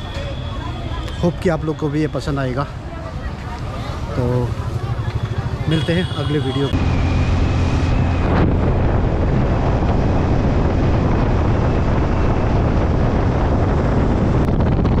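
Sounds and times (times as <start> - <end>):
wind rushing over microphone: 6.7 - 15.0.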